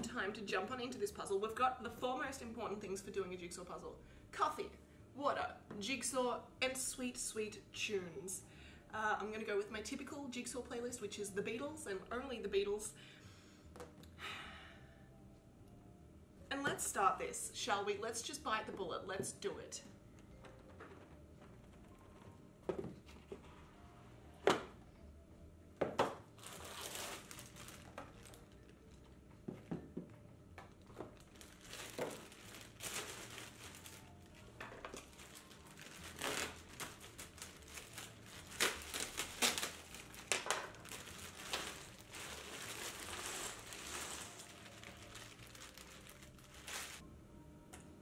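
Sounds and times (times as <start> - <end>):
plastic bag crinkling: 26.4 - 29.2, 30.8 - 47.0.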